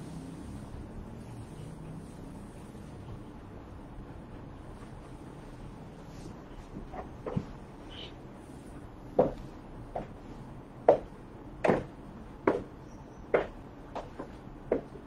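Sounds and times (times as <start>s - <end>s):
high heels clicking on hard floor: 9.2s - 10.2s, 10.8s - 15.0s.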